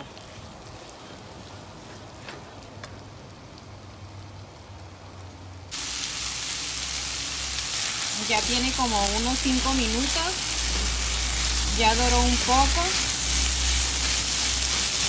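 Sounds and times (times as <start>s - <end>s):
chicken frying in oil: 3.0s - 15.0s.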